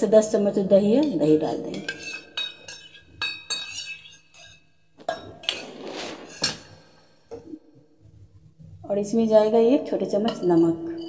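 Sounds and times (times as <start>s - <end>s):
spoon clinking on metal jar: 1.7s - 5.3s
spoon scraping metal jar: 1.7s - 6.8s.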